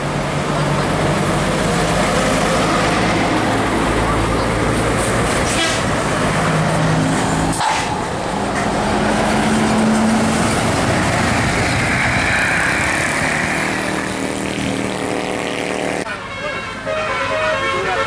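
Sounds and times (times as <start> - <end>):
bus diesel engines running: 0.0 - 18.0
road and tyre noise: 0.0 - 18.0.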